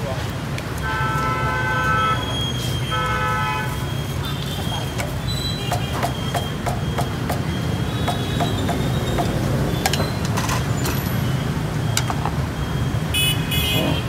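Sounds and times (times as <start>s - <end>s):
street traffic rumble: 0.0s - 14.0s
utensils knocking on steel pot: 8.1s - 10.7s.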